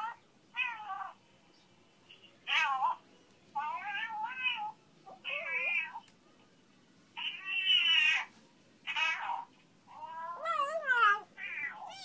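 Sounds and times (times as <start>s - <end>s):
cat meowing: 3.6s - 4.7s, 8.9s - 12.0s.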